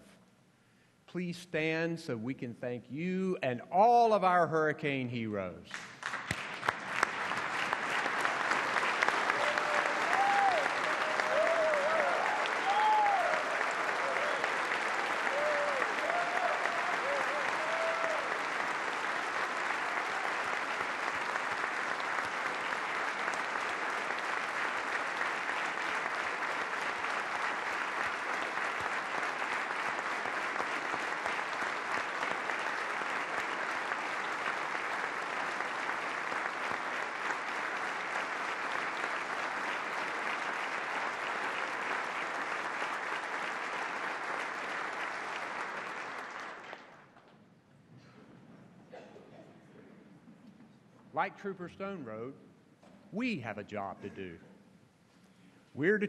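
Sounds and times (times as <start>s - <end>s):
large audience applauding: 5.7s - 47.3s.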